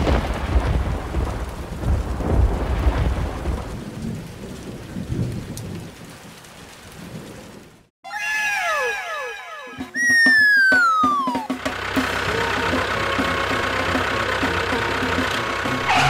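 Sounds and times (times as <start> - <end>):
steady rain: 0.0 - 7.9
thunder rumbling: 0.0 - 7.9.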